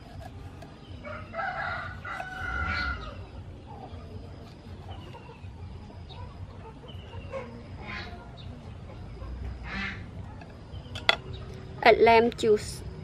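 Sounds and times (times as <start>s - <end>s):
chickens clucking: 0.0s - 11.8s.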